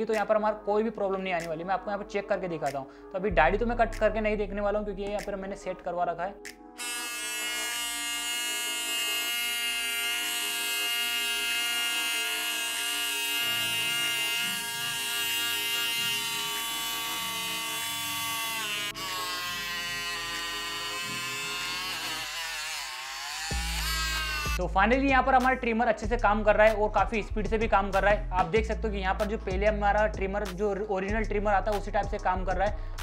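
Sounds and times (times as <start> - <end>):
hair trimmer buzzing: 6.8 - 24.6.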